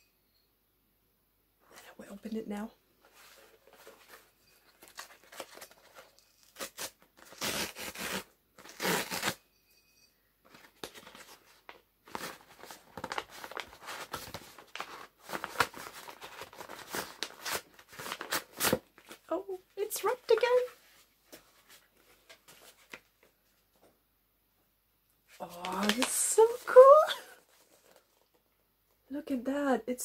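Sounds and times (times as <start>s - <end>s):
paper ripping and crinkling: 4.8s - 9.4s, 12.1s - 19.2s, 25.3s - 28.3s.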